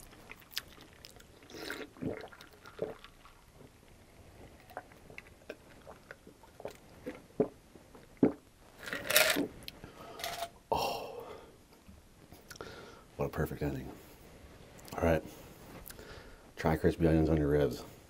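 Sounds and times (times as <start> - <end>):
man gulping and swallowing: 0.0 - 11.5.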